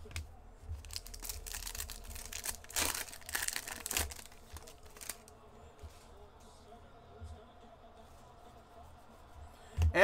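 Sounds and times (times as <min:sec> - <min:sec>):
wrapper tearing and crinkling: 0:00.8 - 0:05.3.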